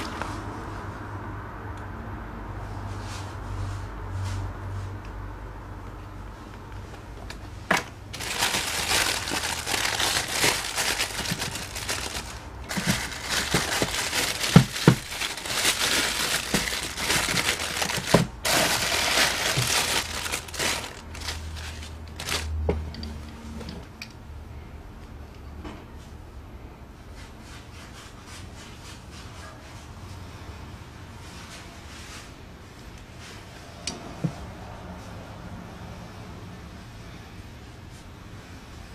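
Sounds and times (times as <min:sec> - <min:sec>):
faint handling noise: 0:06.8 - 0:23.9
plastic wrapping crinkling: 0:08.1 - 0:23.0.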